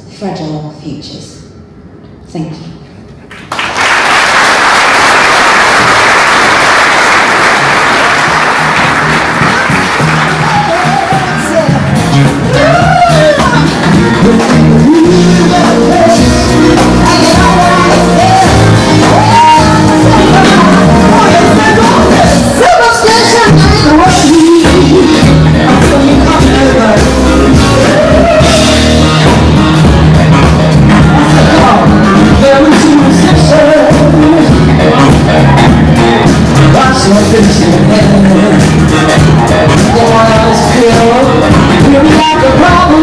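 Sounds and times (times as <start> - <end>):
audience applauding: 3.3 - 12.6
music with singer and bass: 7.6 - 43.0.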